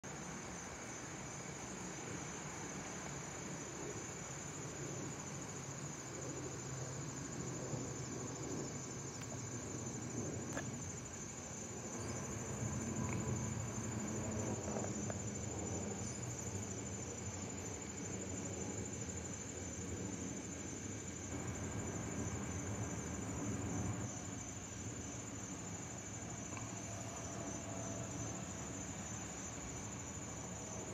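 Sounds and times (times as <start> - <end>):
crickets trilling: 0.0 - 30.9
jet airliner rumble: 7.2 - 17.1.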